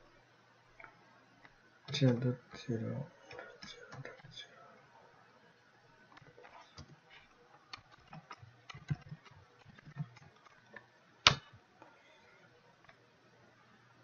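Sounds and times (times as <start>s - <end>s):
keyboard keys clicking: 7.6s - 11.4s.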